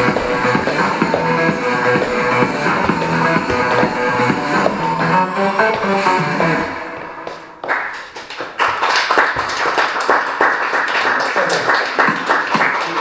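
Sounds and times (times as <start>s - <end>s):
group hand clapping: 7.2s - 13.0s.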